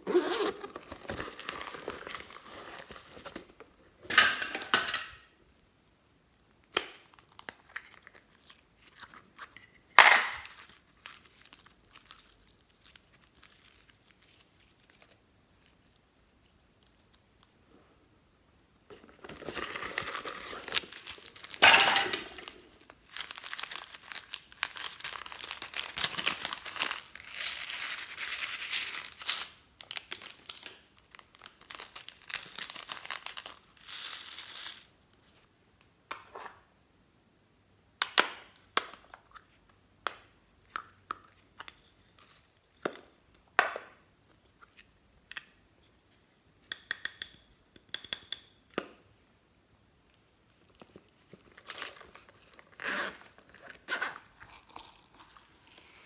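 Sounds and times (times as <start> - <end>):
plastic packets crinkling: 10.3 - 15.9, 19.2 - 34.9.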